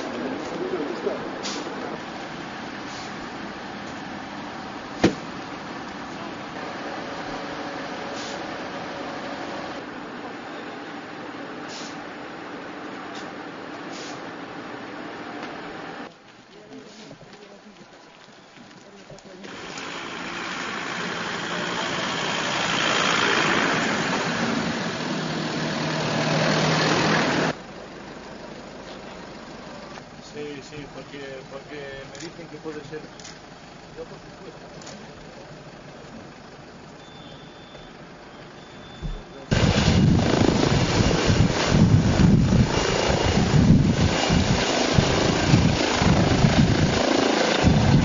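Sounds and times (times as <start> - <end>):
vehicles driving past: 0.0 - 16.8, 17.4 - 48.0
steady engine hum: 0.0 - 48.0
helicopter rotor and turbine thrum: 39.5 - 48.0.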